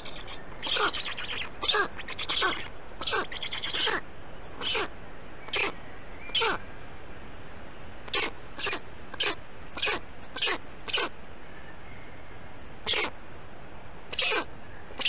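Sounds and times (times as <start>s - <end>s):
stork chick squealing distress calls: 0.0s - 4.0s, 4.6s - 4.9s, 5.5s - 6.6s, 8.1s - 11.1s, 12.8s - 13.1s, 14.1s - 15.0s.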